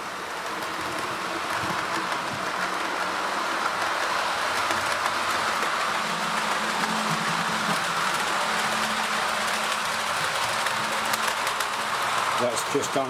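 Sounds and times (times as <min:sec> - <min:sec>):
model train motor whirring: 0:00.0 - 0:13.0.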